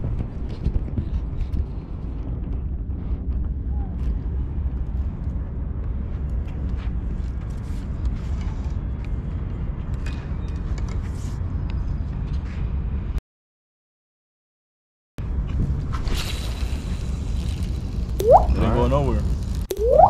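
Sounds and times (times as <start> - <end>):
wind buffeting microphone: 0.0 - 6.2.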